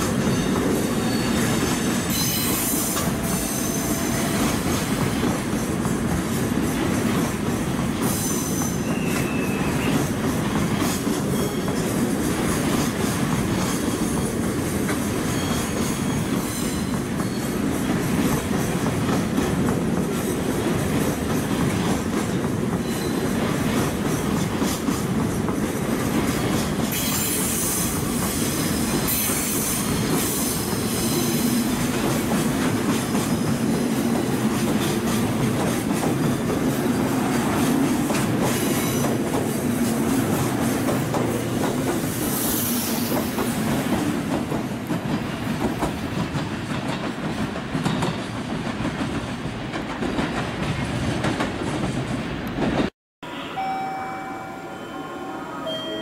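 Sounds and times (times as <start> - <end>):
train equipment running: 0.0 - 9.1
low steady tone: 53.3 - 56.0.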